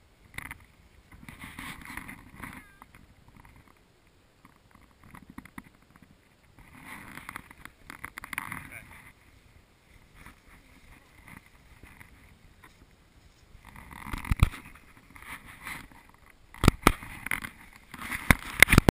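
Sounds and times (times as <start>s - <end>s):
camera handling rubbing: 0.3s - 3.8s, 13.6s - 18.9s.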